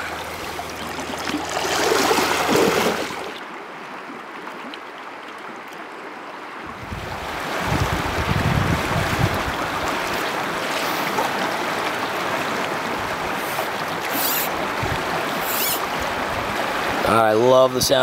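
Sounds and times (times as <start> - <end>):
river current rushing: 0.0 - 4.4, 5.0 - 18.0
wind on microphone: 6.6 - 10.3, 13.3 - 17.1.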